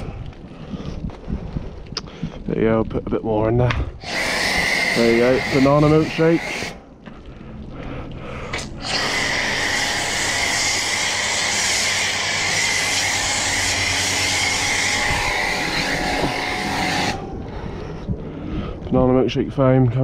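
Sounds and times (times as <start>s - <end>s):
low hum: 0.0s - 20.0s
foam cannon spray hissing: 4.0s - 6.8s, 8.5s - 17.2s.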